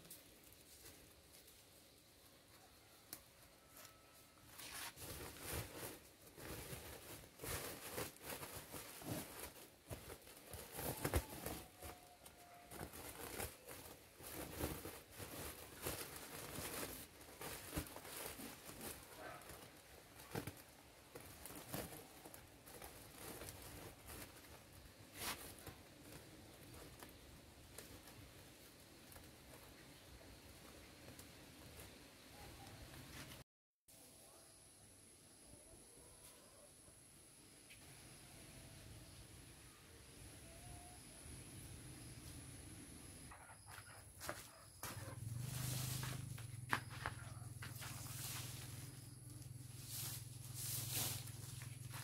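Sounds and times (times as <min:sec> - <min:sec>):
plastic sacks rustling and crinkling: 0:00.0 - 0:32.5, 0:43.7 - 0:52.0.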